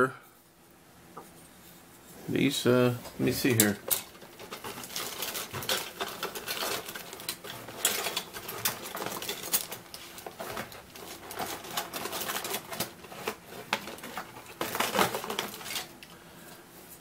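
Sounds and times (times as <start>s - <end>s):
plastic bag crinkling: 3.2s - 16.2s.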